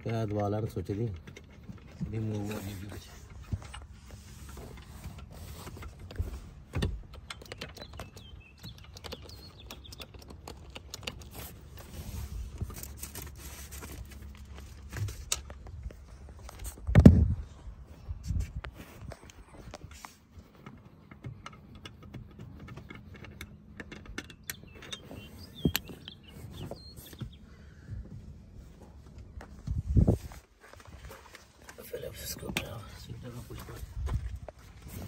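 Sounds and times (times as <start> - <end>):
small clicks and knocks: 0.0 - 11.9, 19.1 - 27.4
paper rustling: 11.1 - 16.8.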